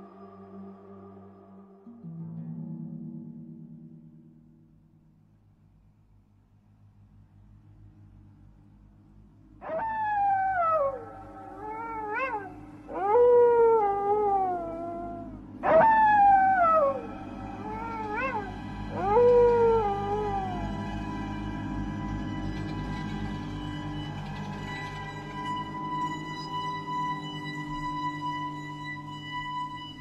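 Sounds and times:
low steady hum: 0.0 - 30.0
animal-like yowls: 9.6 - 21.6.

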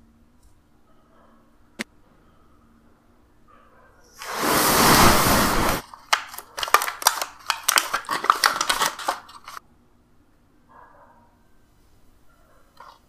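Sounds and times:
foil crinkling and crackling: 4.2 - 9.6
foil lid rasping: 4.2 - 9.6.

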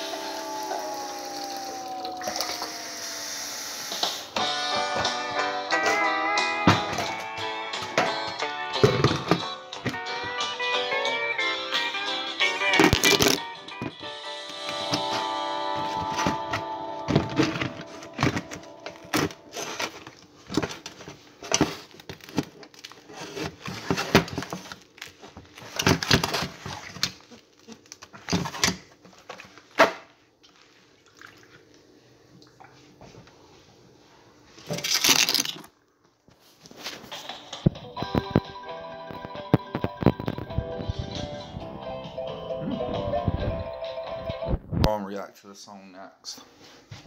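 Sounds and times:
song: 4.1 - 19.9, 37.2 - 44.6.

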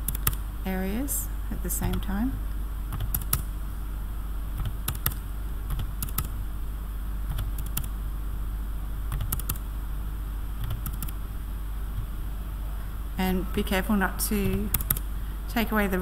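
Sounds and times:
computer mouse and key clicks: 0.0 - 0.4, 2.9 - 3.5, 4.6 - 6.4, 7.3 - 8.0, 9.1 - 9.6, 10.6 - 11.2, 14.4 - 15.0
steady low hum: 0.0 - 16.0.

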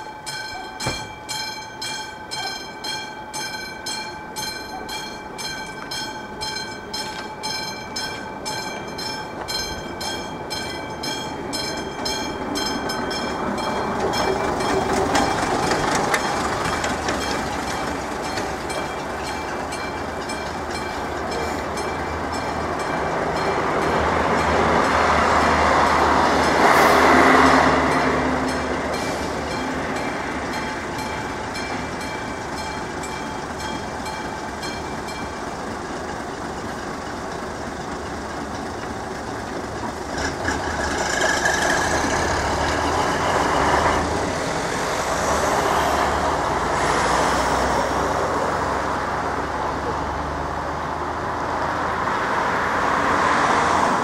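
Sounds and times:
level crossing bell ringing: 0.0 - 15.4
road vehicles driving: 0.0 - 54.0
train rolling rumble: 0.0 - 54.0.

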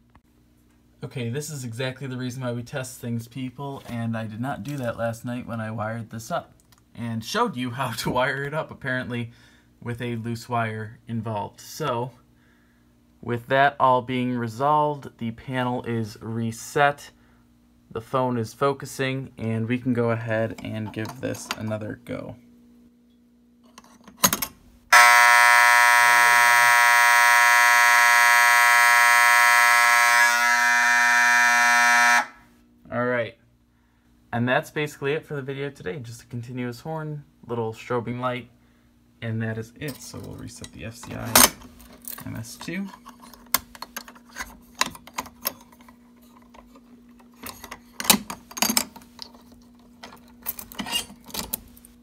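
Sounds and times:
fire alarm horn: 24.9 - 32.6.

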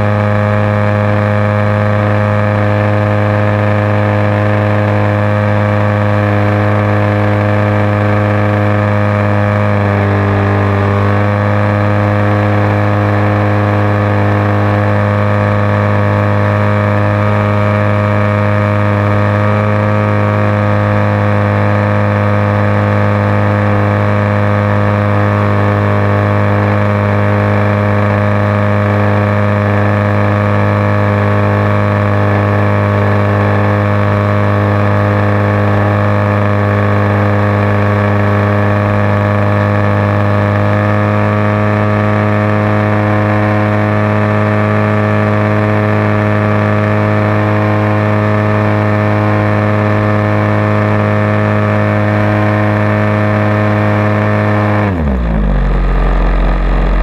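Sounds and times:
model plane engine running: 0.0 - 57.0.

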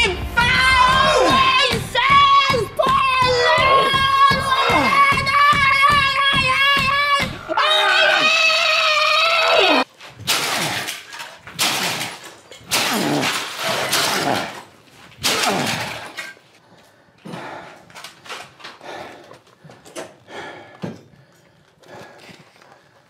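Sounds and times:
metal bar smashing appliance: 10.2 - 16.4.

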